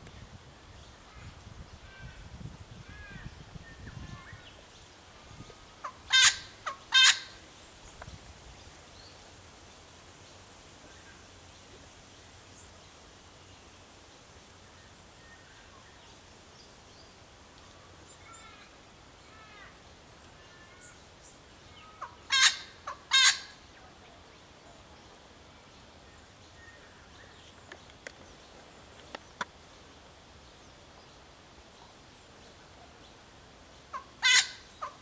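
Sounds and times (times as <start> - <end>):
bird harsh croaking calls: 5.8 - 7.4, 21.8 - 23.6, 33.9 - 35.0.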